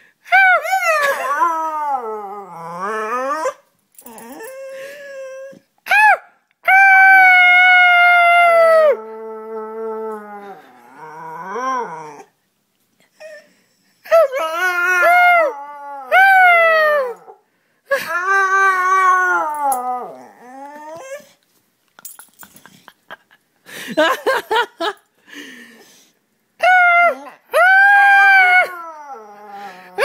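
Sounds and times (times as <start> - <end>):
dog howling: 18.4 - 21.2.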